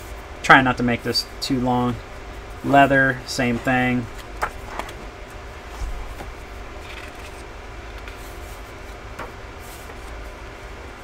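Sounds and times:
steady low hum: 0.0 - 11.0
book pages rustling: 4.1 - 9.0.

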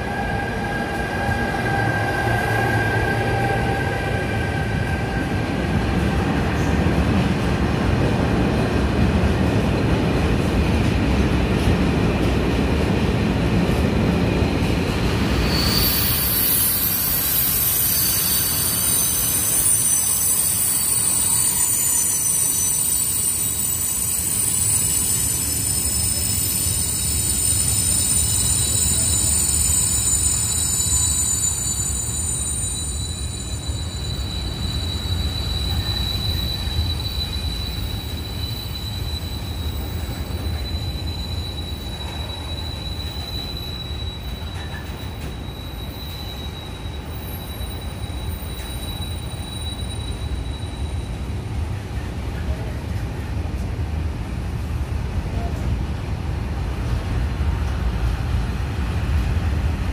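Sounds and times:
high-pitched wheel squeal: 15.3 - 51.3.

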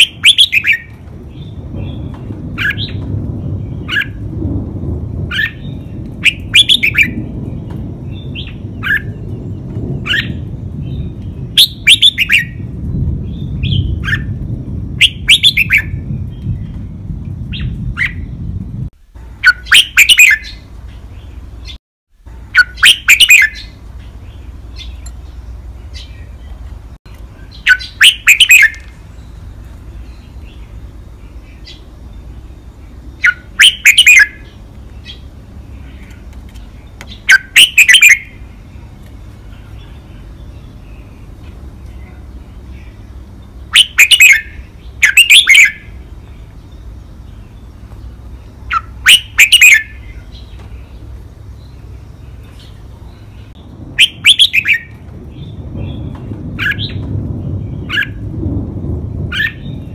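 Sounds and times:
bird singing song phrases: 0.0 - 4.3, 5.3 - 58.3
low rumble: 0.0 - 45.1, 45.7 - 59.9
soft bird chirps: 22.5 - 58.2.

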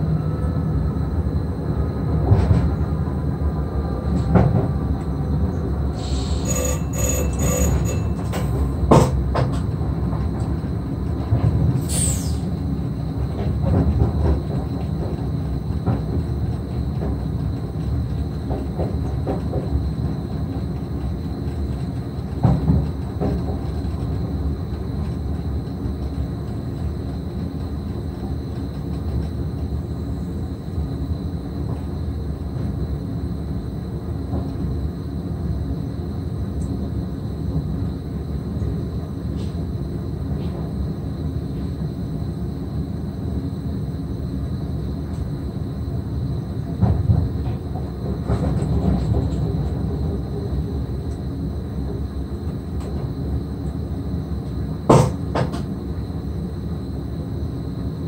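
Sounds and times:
train wheels rumbling on track: 0.0 - 58.0
high squeal: 6.0 - 8.6
thump: 54.9 - 55.7.

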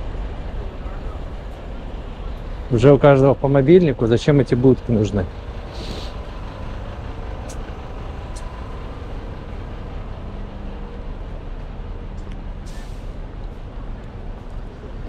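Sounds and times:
road traffic rumble: 0.0 - 15.0
short hiss: 5.6 - 6.3.

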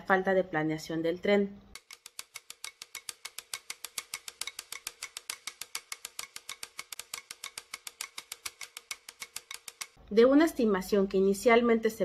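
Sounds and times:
rapid typing clicks: 1.7 - 10.0.

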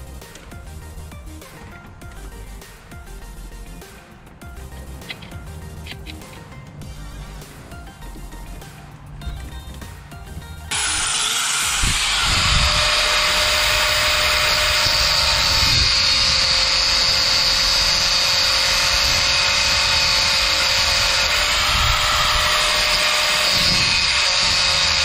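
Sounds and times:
power tool hissing and whining: 10.7 - 25.0.

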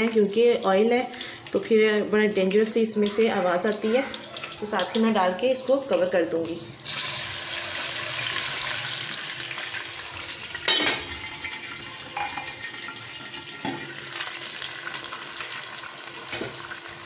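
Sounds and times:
oil sputtering and sizzling: 0.0 - 17.0
metal lid clanking on pan: 10.7 - 11.2, 12.2 - 12.6.

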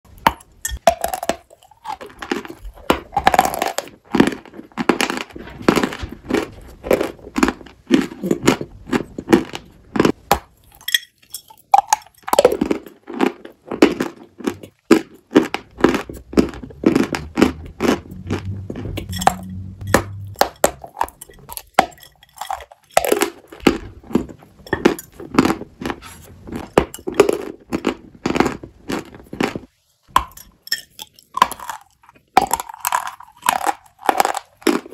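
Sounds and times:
chewing chalk crunches: 31.0 - 34.9.

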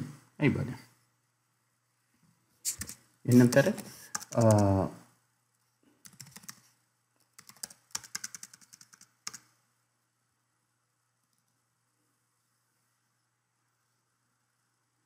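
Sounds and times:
computer keyboard typing: 2.7 - 4.8, 6.0 - 6.7, 7.3 - 9.5.

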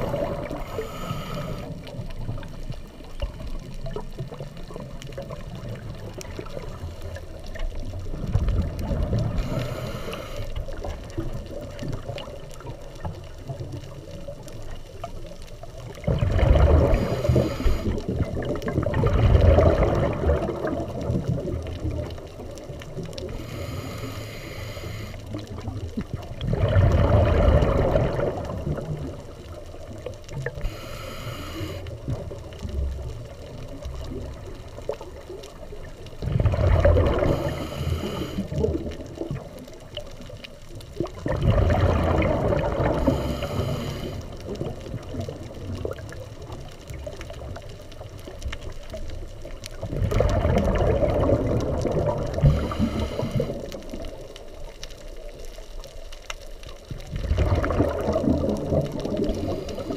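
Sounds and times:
regulator hiss on inhale: 0.0 - 2.2, 9.2 - 11.2, 16.8 - 18.2, 23.2 - 25.6, 30.4 - 32.3, 37.0 - 38.7, 42.8 - 44.6, 52.3 - 54.0, 59.2 - 59.9
bubbling on exhale: 0.0 - 2.6, 3.2 - 12.8, 15.9 - 54.8, 56.8 - 59.9.

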